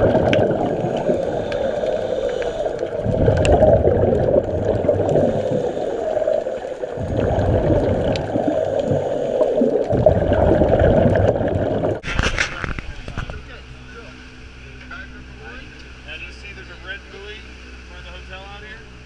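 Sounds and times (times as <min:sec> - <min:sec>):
scuba regulator bubbles gurgling: 0:00.0 - 0:12.0
muffled underwater noise: 0:00.0 - 0:18.8.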